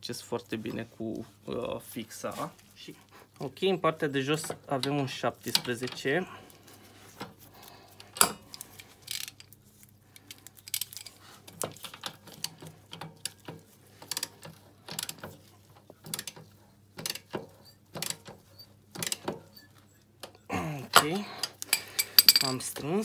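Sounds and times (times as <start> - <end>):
socket ratchet clicking: 17.0 - 19.6.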